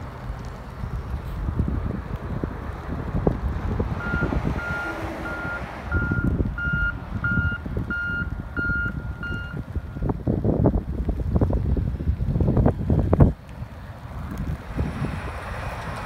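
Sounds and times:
wind buffeting microphone: 0:00.0 - 0:16.0
vehicle backup alarm beeping: 0:04.0 - 0:10.1.

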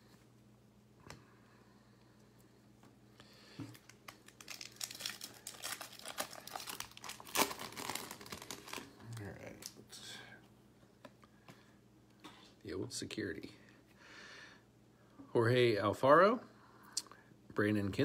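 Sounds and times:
foil wrapper tearing and crinkling: 0:03.7 - 0:09.8.

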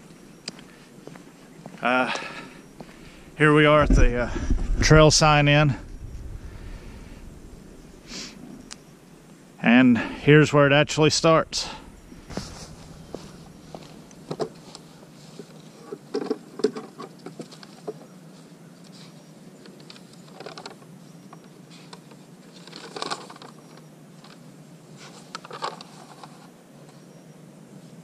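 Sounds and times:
footsteps crunching on trail: 0:00.0 - 0:08.7, 0:11.2 - 0:14.6.

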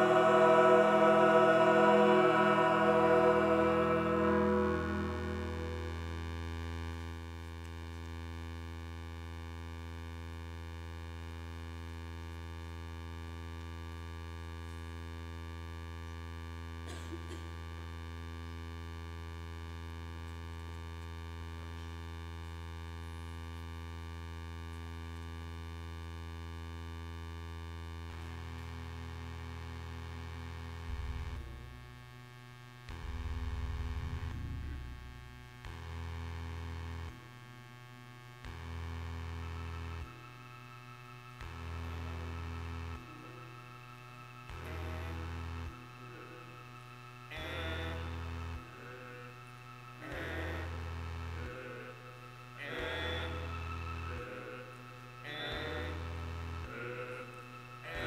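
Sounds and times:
low synthesizer drone: 0:00.0 - 0:07.5, 0:30.4 - 0:32.1, 0:32.8 - 0:58.0.

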